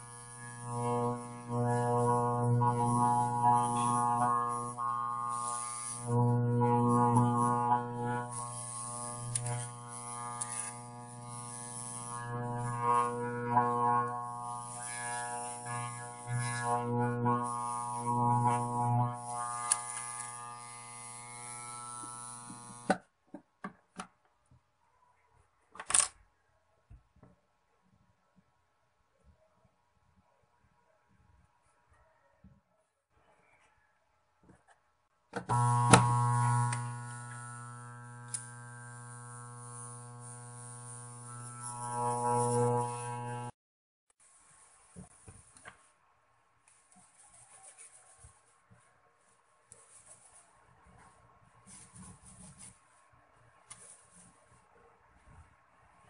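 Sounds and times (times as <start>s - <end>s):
deep electrical hum: 35.5s - 43.6s
click: 38.3s - 38.5s.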